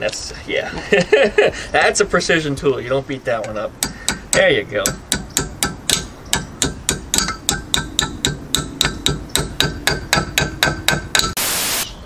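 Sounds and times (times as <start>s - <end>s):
metal tapping on wrench: 3.4s - 11.4s.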